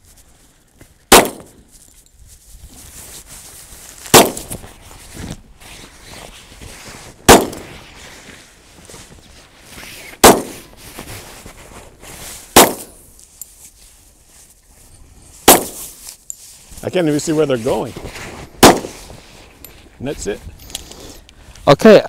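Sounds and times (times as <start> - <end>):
pistol shots: 1.1 - 1.6, 4.1 - 4.5, 7.3 - 7.7, 10.2 - 10.7, 12.6 - 13.0, 15.4 - 15.9, 18.6 - 19.0.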